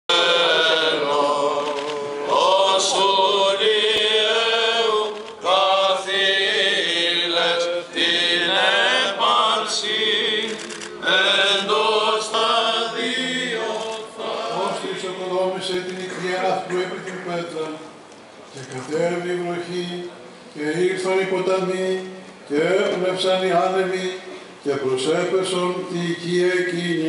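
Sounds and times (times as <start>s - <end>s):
men chanting into microphones: 0.1s - 15.9s.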